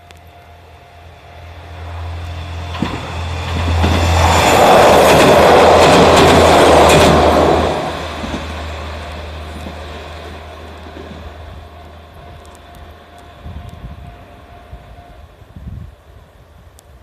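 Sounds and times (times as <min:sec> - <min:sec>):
diesel railcar passing: 0:00.0 - 0:17.0
wheels clicking over rail joints: 0:02.2 - 0:13.7.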